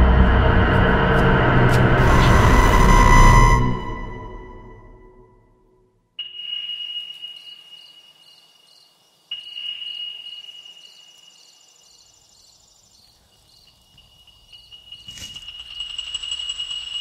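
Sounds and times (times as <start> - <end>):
high pure ringing tone: 6.2 - 8.2, 9.3 - 11.2, 14.2 - 17.0
crickets chirping: 6.2 - 17.0.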